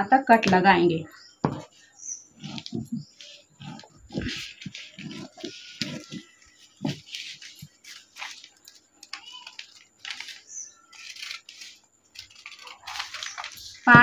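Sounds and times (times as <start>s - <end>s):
paper rustling: 2.4s - 14.0s
scissors snipping newspaper: 7.0s - 13.9s.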